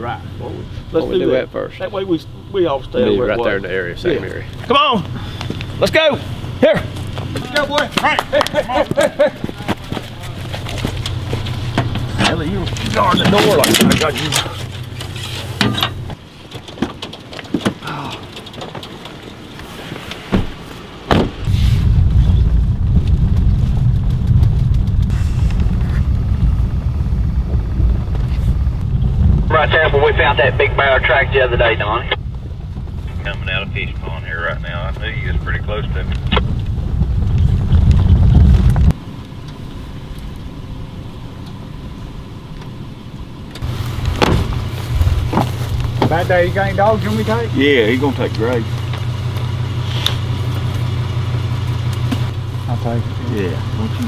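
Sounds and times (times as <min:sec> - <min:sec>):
outdoor background: 0:00.0 - 0:54.0
vehicle engine droning: 0:00.0 - 0:54.0
vehicle door shutting thud: 0:20.2 - 0:21.6, 0:43.6 - 0:44.7
short thump: 0:20.3 - 0:21.8, 0:44.1 - 0:44.6
wind rumble on microphone: 0:21.4 - 0:39.0, 0:43.6 - 0:47.8.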